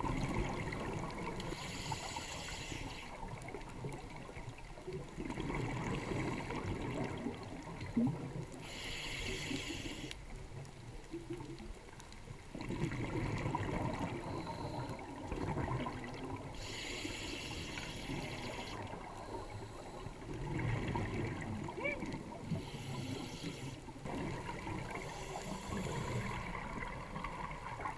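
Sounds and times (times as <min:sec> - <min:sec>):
exhaled bubbles underwater: 0:00.0 - 0:09.5, 0:11.0 - 0:27.9
regulator inhalation hiss: 0:01.5 - 0:03.2, 0:08.6 - 0:10.1, 0:16.6 - 0:20.2, 0:22.5 - 0:23.8, 0:25.0 - 0:26.4.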